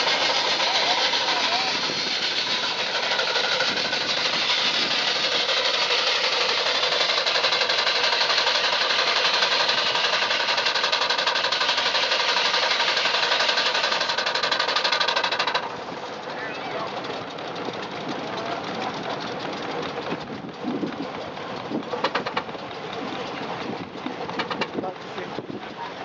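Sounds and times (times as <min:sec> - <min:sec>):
steam hissing: 0:00.0 - 0:15.8
steam engine exhaust beating: 0:00.0 - 0:26.0.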